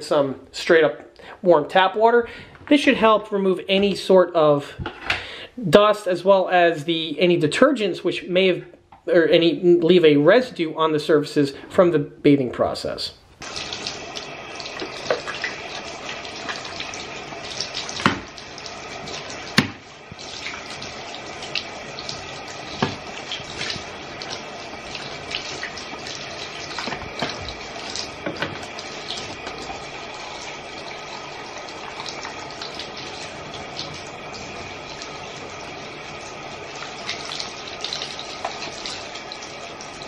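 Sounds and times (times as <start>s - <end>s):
tap water running and splashing: 13.4s - 40.0s.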